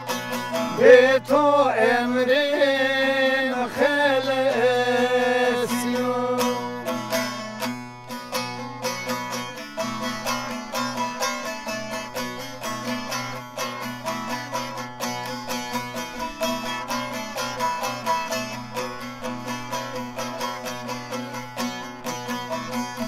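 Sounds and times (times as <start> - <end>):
plucked long-necked lute: 0.0 - 23.0.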